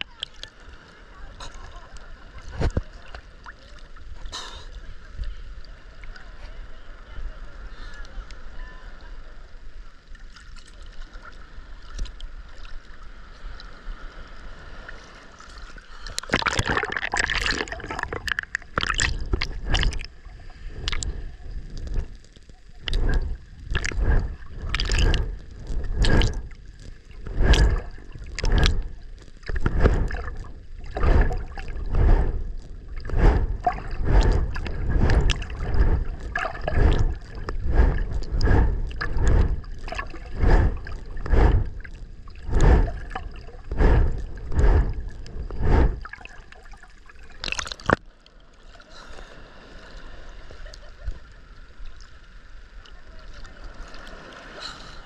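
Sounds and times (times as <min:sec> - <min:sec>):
choppy surface water wash: 0:00.0 - 0:55.0
underwater swimming strokes whooshing: 0:16.3 - 0:48.0.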